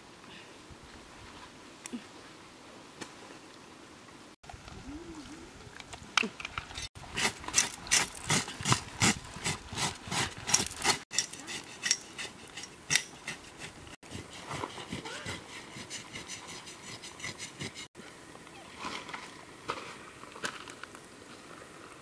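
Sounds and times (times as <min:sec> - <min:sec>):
knife scraping hair off hide: 0:07.2 - 0:17.9.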